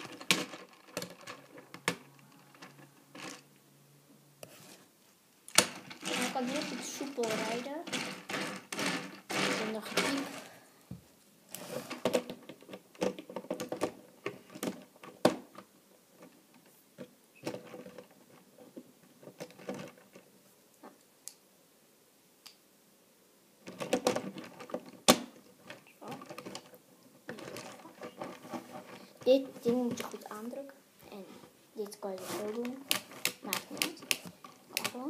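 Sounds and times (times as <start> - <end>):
plastic toy parts clicking: 32.5 - 35.0.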